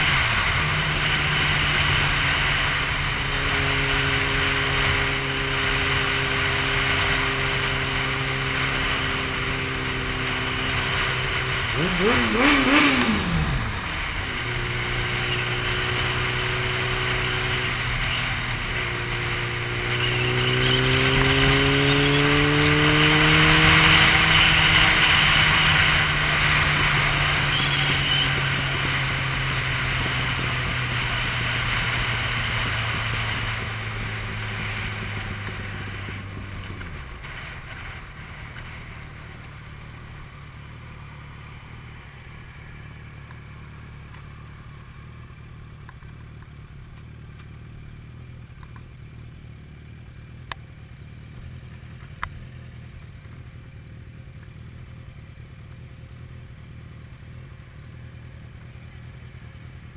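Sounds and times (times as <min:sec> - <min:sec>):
vehicle engine accelerating: 0:00.0 - 0:47.6.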